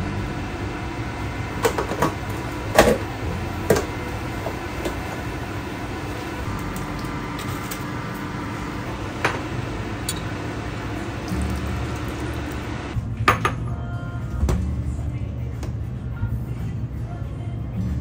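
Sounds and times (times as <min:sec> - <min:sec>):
induction cooktop humming: 0:00.0 - 0:13.0.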